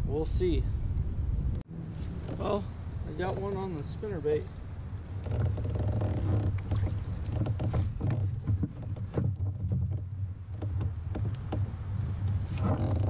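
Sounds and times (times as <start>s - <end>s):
steady low rumble: 0.0s - 5.3s
clicks knocks and splashy rattles: 5.3s - 13.0s.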